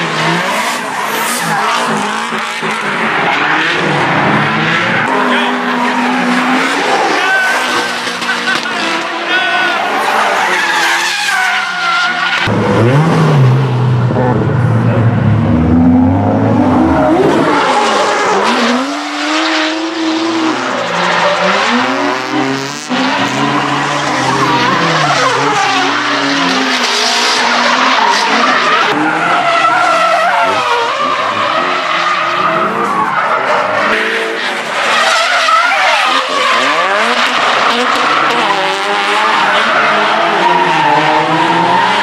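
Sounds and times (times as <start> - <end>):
car engines revving hard: 0.0 - 42.0
tyres squealing while skidding: 5.8 - 12.5, 22.9 - 42.0.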